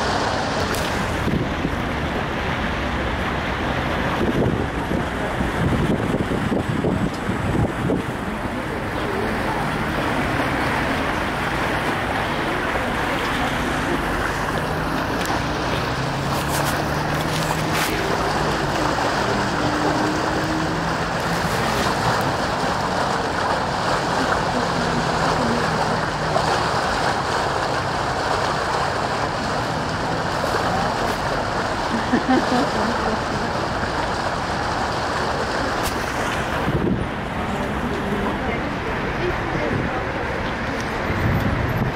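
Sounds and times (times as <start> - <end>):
low engine hum: 0.0 - 41.9
river rushing around bridge pier: 0.0 - 41.9
wind on microphone: 4.0 - 8.8, 35.9 - 38.3, 39.6 - 41.9.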